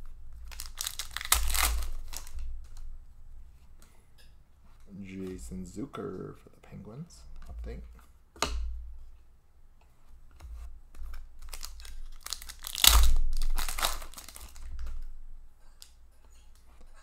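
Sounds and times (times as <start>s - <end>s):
foil wrapper tearing and crinkling: 0.4s - 2.4s, 11.3s - 15.1s.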